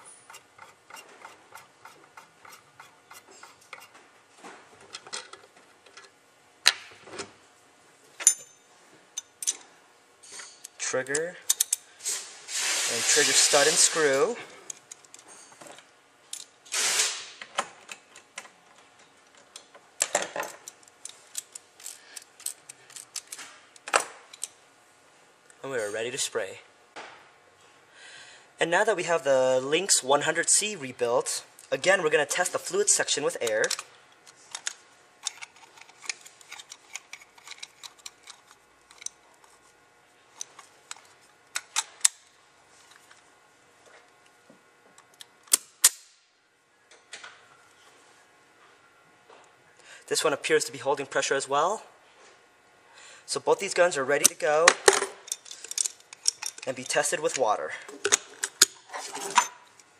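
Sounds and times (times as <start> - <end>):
metallic clicks of tools: 10.3 - 11.8, 55.2 - 57.0.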